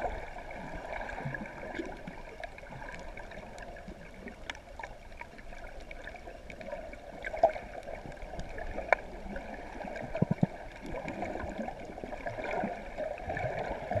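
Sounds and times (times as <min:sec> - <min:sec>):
clicks underwater: 0:01.7 - 0:12.7.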